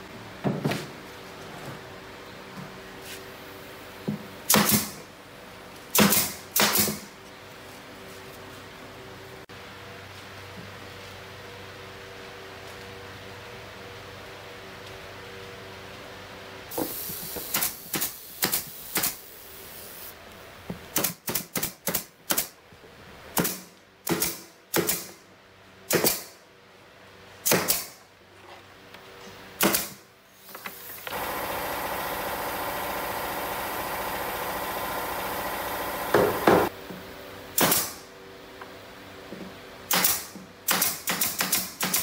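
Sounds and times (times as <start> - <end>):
nail gun shots into plywood: 4.5 - 5.0, 5.9 - 7.1, 21.0 - 22.5, 23.4 - 25.2, 25.9 - 26.4, 27.4 - 28.0, 29.6 - 30.0, 37.6 - 38.0, 39.9 - 42.0
steady machine noise: 30.8 - 36.7.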